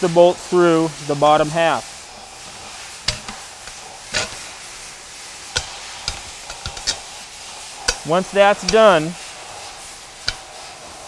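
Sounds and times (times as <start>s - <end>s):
steady low hiss: 0.0s - 11.0s
metal bolts clicking on metal flange: 7.9s - 9.0s, 10.2s - 10.5s.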